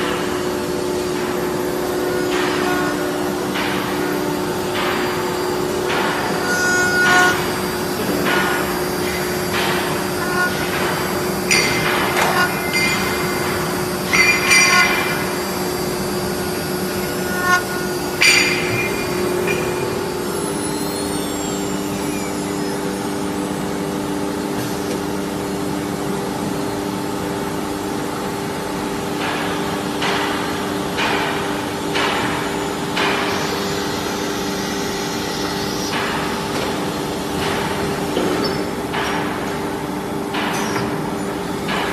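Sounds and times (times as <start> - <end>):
cnc router humming: 0.0 - 29.0
sharp knocks and clanks: 1.1 - 20.1, 29.2 - 33.4, 40.3 - 41.9.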